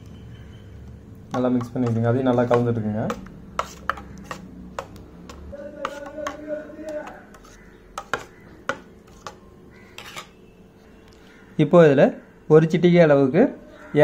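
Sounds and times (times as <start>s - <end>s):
spoon scraping batter in bowl: 1.3s - 10.5s.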